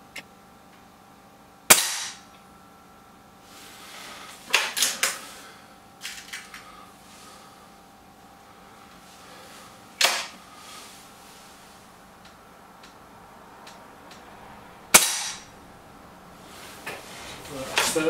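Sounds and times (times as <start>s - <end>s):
air rifle shot: 1.7s - 2.2s, 14.9s - 15.5s.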